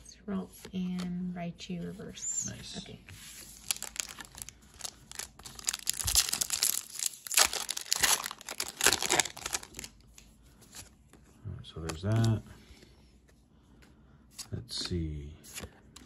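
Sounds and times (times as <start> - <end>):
foil wrapper crinkling and tearing: 3.5 - 10.0.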